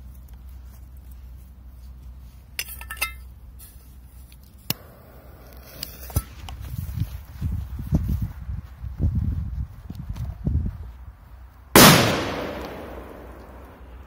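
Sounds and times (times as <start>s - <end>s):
sharp clicks and clinks: 2.6s - 3.3s.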